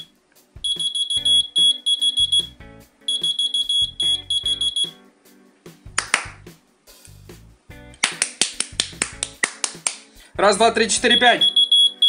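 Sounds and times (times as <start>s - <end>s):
key finder chirping: 0.7s - 2.5s, 3.1s - 4.9s, 11.1s - 12.0s.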